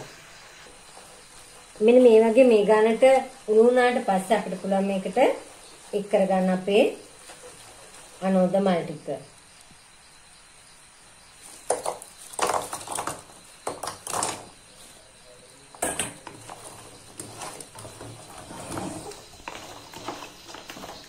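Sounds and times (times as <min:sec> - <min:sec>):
wooden spatula scraping a pan: 0:16.3 - 0:21.0.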